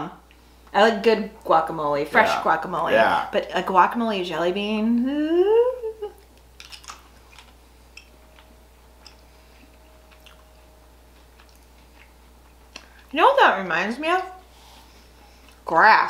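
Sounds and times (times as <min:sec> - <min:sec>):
person speaking drawn-out word: 0:02.1 - 0:03.4
mouth clicks chewing: 0:06.2 - 0:10.5.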